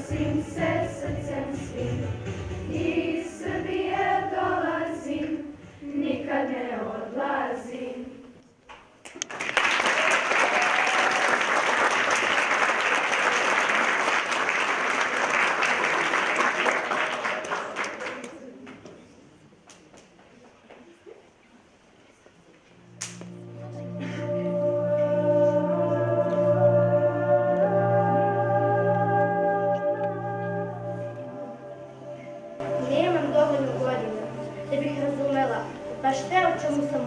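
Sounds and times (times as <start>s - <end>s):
choir singing: 0.0s - 8.4s, 23.3s - 37.0s
audience applauding: 9.1s - 18.8s.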